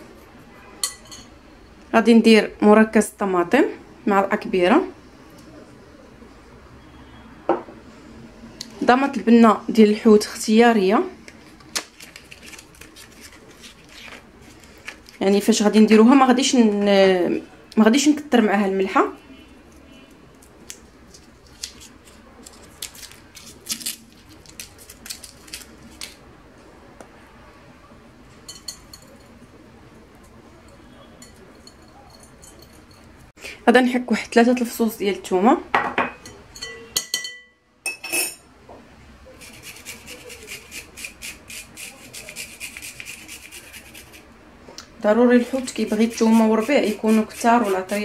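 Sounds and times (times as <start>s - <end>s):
foil wrapper crinkling: 11.6s - 15.2s, 20.6s - 26.2s
garlic grating rasps: 39.4s - 44.3s, 45.4s - 48.0s.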